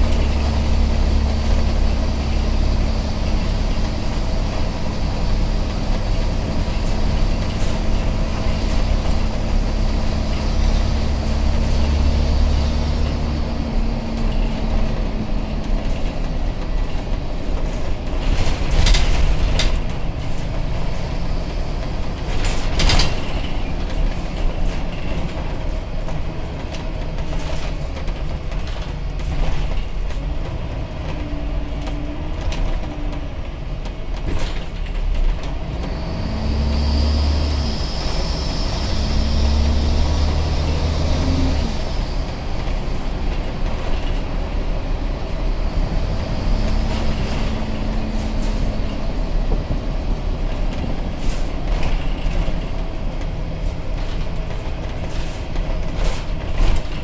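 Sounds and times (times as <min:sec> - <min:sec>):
bus diesel engine running: 0:00.0 - 0:57.0.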